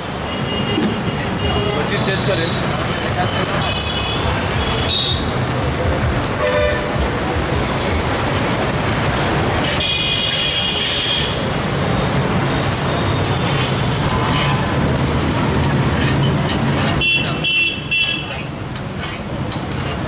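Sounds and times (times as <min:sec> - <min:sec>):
traffic and street noise: 0:00.0 - 0:20.0.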